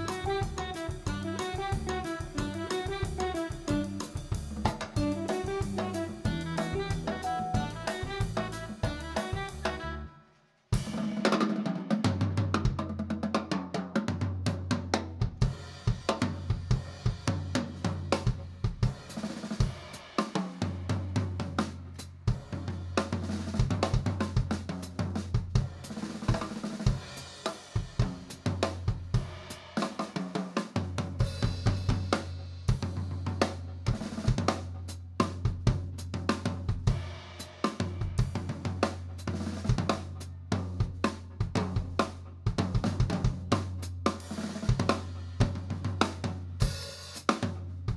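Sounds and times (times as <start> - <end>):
drum kit playing busy pattern: 0.0 - 10.1, 10.7 - 47.9
held bass notes: 0.0 - 10.1
jazz band playing: 0.0 - 10.1.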